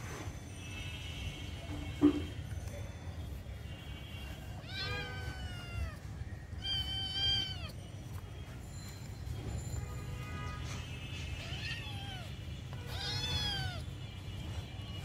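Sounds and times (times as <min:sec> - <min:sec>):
kitten meowing: 0:04.6 - 0:06.0, 0:06.6 - 0:07.7, 0:11.4 - 0:13.8.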